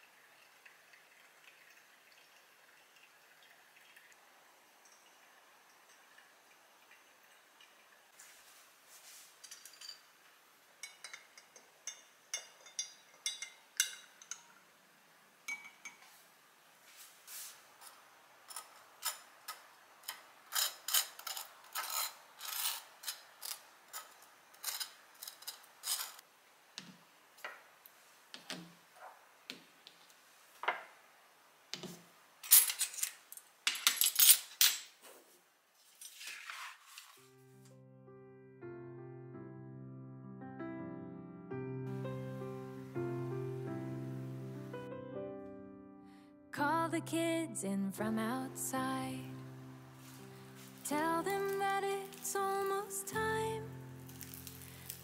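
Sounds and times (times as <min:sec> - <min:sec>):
glass jars clinking: 0:09.4 - 0:10.1, 0:10.8 - 0:14.6, 0:15.5 - 0:16.1
metal utensil scraping toast: 0:17.8 - 0:26.2.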